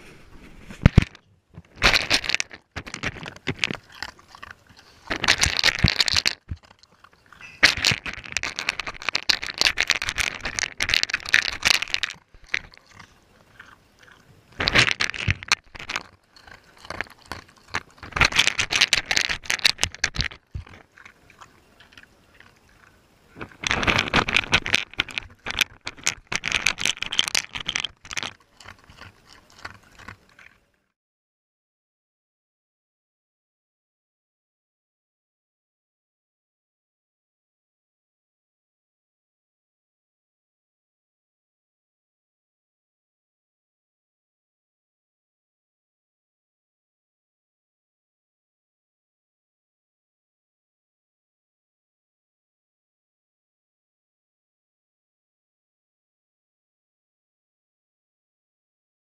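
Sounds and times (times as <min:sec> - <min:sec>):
dog crunching food: 0:00.8 - 0:30.6.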